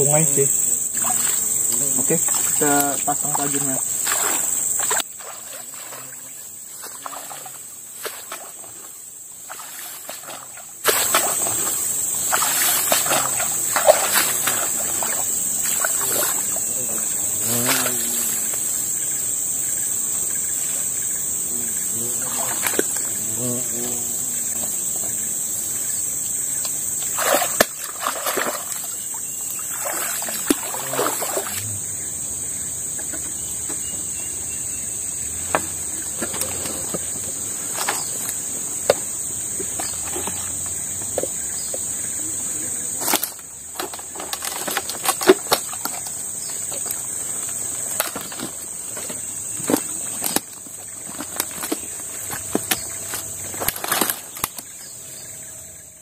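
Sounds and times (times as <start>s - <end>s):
high-pitched insect drone: 0.0s - 44.9s
footsteps wading through water: 4.0s - 16.6s, 27.0s - 31.6s
dead branches snapping: 43.0s - 46.1s, 49.6s - 54.7s.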